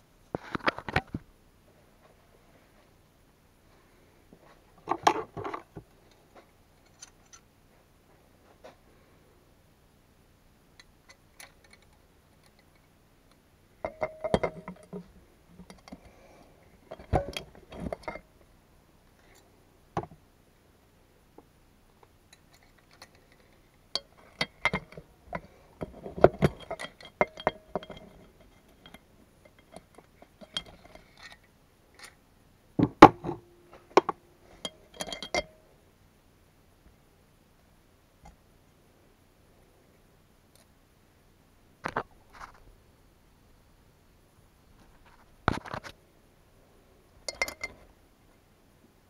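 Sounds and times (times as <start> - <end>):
metal clinks and clicks: 22.3 - 31.4, 34.6 - 35.6, 47.3 - 47.8.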